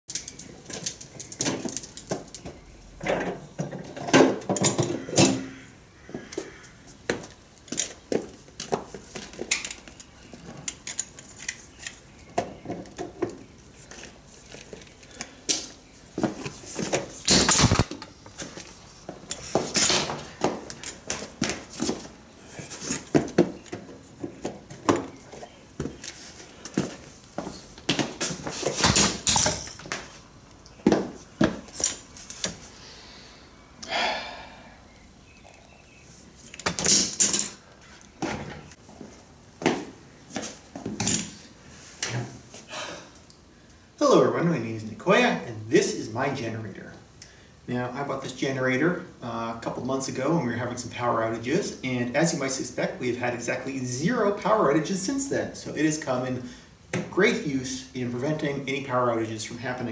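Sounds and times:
generator clanking on concrete: 0.1s - 5.5s
extension cord handled: 13.9s - 18.7s.

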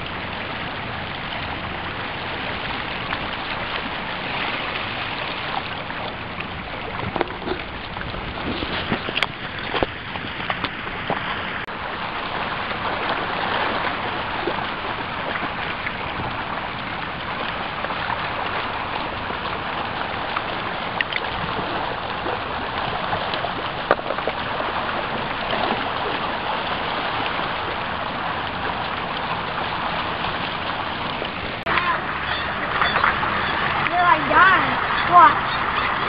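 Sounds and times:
shallow water running over stones: 0.0s - 36.0s.

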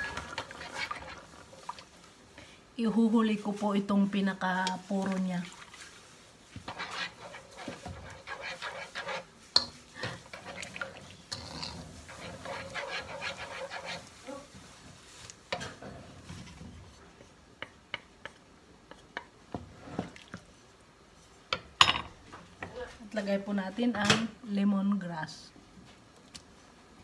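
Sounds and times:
liquid sloshing in a wok: 0.0s - 2.3s, 4.7s - 17.1s.

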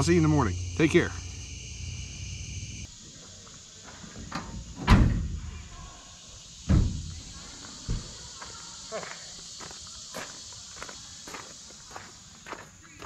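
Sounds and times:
crickets chirping: 0.0s - 13.0s
heavy thud of door slamming: 4.8s - 5.5s, 6.6s - 7.2s.

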